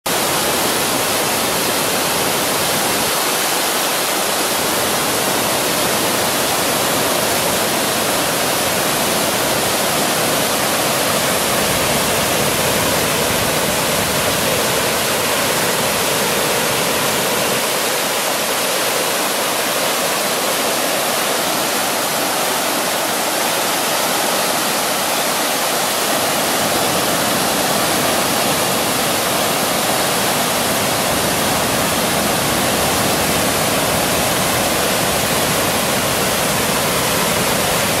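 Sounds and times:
water rushing over weir: 0.1 - 38.0.

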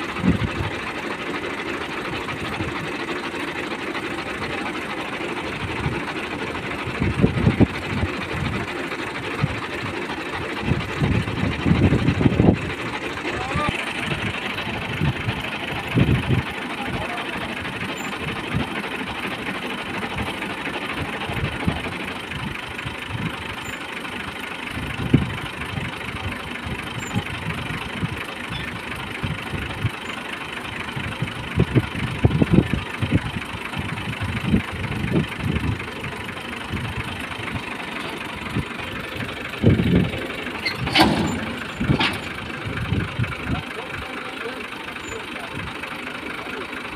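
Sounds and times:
tractor engine running: 0.0 - 46.9
thresher low thumps: 39.6 - 43.2.

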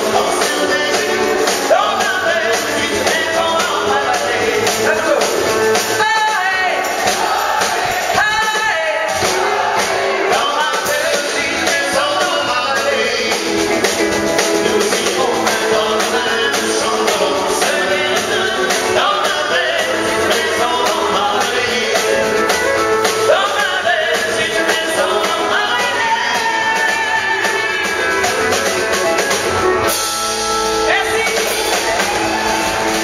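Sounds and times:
drums: 0.0 - 33.0
woman singing lead: 14.6 - 28.7.

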